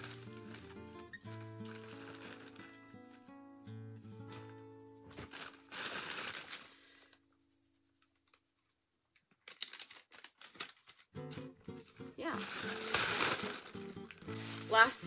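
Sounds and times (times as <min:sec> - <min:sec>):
sharp crackles: 0:00.0 - 0:03.0, 0:09.4 - 0:15.0
cloth rustling and crinkling: 0:00.0 - 0:03.2, 0:04.2 - 0:06.9, 0:09.3 - 0:15.0.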